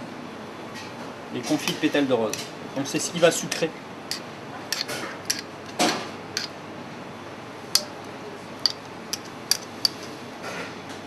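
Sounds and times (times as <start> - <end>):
kitchen utensils clicking: 3.5 - 5.8, 8.6 - 10.2.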